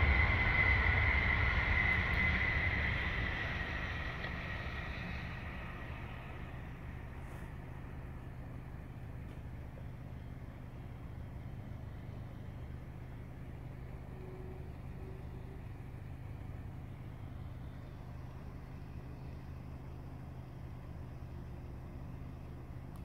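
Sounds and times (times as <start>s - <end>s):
engine rumble: 0.0s - 23.0s.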